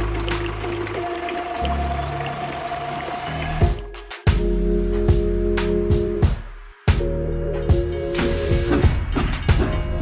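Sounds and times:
held chords over steady beat: 0:03.6 - 0:10.0.

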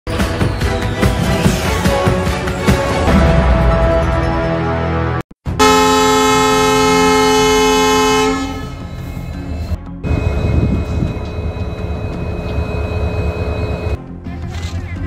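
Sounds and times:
locomotive horn chord: 0:05.5 - 0:09.4
locomotive engine rumble: 0:05.6 - 0:14.0.

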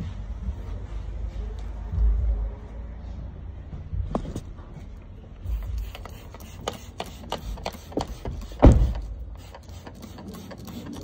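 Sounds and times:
spray bottle squirting: 0:05.4 - 0:11.0.

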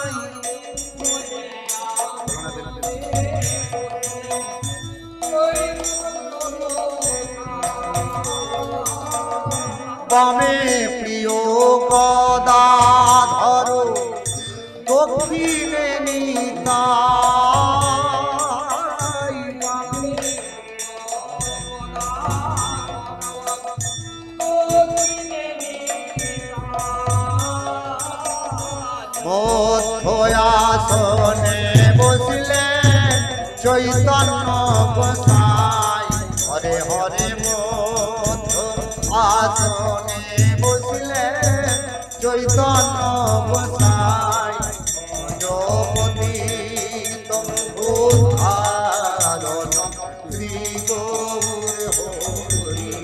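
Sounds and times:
metallic percussion: 0:00.0 - 0:53.0
person singing devotional song: 0:00.0 - 0:53.0
low drum beat: 0:26.2 - 0:53.0.

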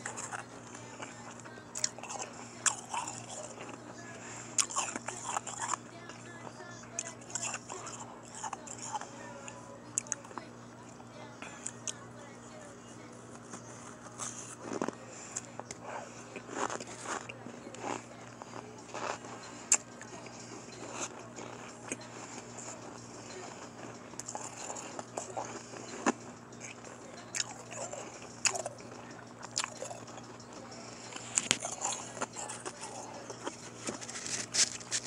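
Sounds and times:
person crunching ice: 0:00.0 - 0:05.8, 0:31.1 - 0:35.0
faint steady hum: 0:00.0 - 0:35.0.

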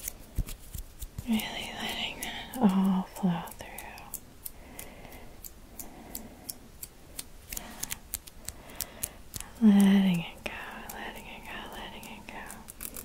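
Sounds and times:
fingers plucking and rubbing: 0:06.8 - 0:13.0.

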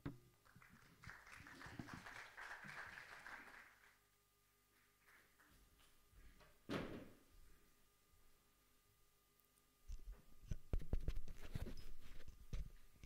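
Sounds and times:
faint applause: 0:00.4 - 0:04.0.

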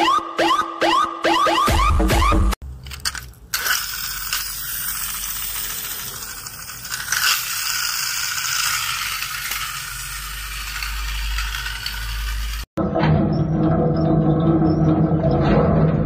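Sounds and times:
toy car motor whirring: 0:02.8 - 0:12.8.

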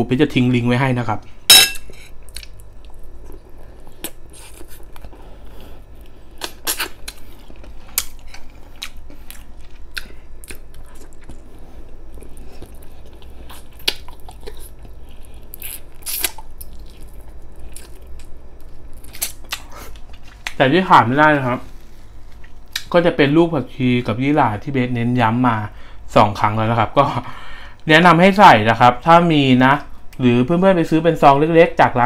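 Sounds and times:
person chewing meat: 0:02.2 - 0:20.6.

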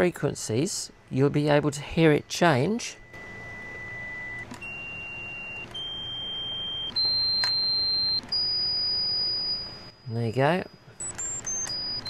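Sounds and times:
test tone stepping in pitch: 0:02.8 - 0:12.0
dial clicks: 0:03.1 - 0:09.6, 0:11.0 - 0:12.0.

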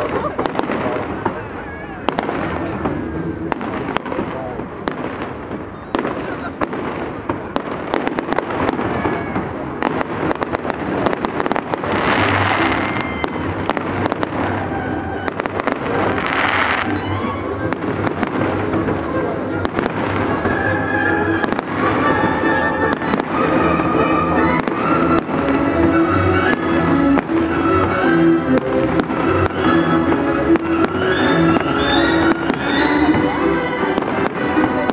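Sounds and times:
fireworks bangs: 0:00.0 - 0:34.9
hissing crackles of fireworks: 0:00.0 - 0:34.9
music with held notes: 0:09.4 - 0:34.9.

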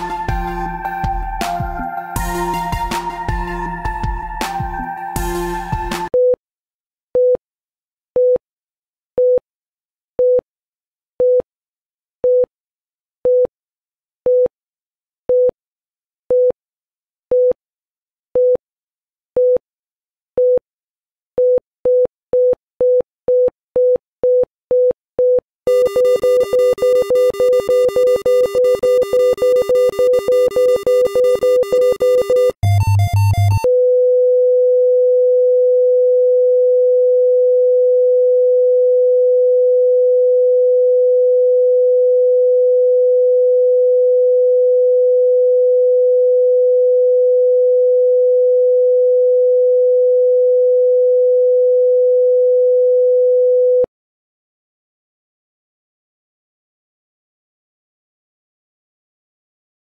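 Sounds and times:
heart monitor beeps: 0:21.4 - 0:33.7
lower electronic tone: 0:25.7 - 0:33.7.

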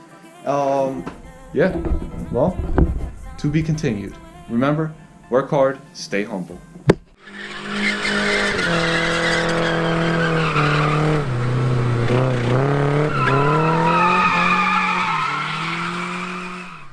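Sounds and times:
car engine revving high: 0:07.2 - 0:16.9
tyres squealing: 0:07.2 - 0:16.9.

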